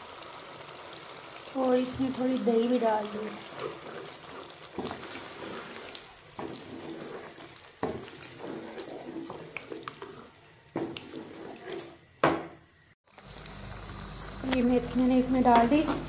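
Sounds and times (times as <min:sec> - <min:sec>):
wet squelching stirring: 0:02.1 - 0:12.1.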